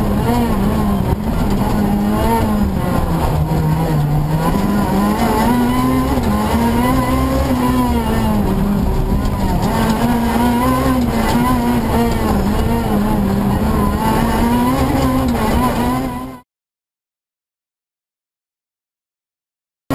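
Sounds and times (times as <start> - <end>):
rally car engine revving: 0.0 - 16.4.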